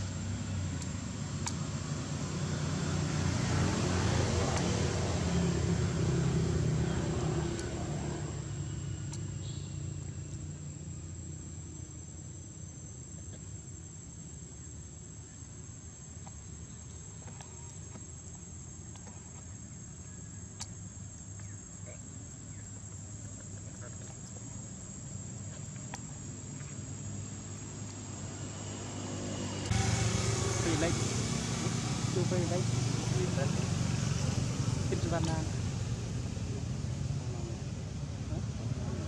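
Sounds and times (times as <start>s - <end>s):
vehicle engine passing: 0.0s - 11.6s, 24.8s - 39.0s
high-pitched insect drone: 26.0s - 37.7s.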